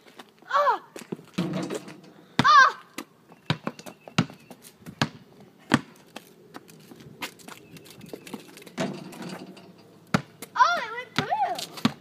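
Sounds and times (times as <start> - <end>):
basketball bouncing on concrete: 2.4 - 6.0, 10.1 - 12.0.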